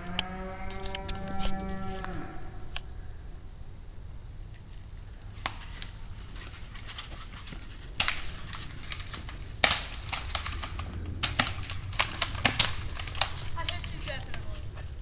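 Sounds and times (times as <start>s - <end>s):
small clicks and snaps: 0.0s - 2.9s, 5.4s - 14.9s
airsoft gun shots: 9.5s - 14.2s.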